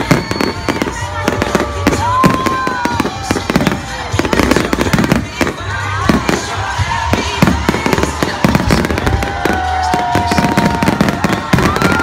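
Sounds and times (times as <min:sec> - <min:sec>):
fireworks bursting and crackling: 0:00.0 - 0:12.0.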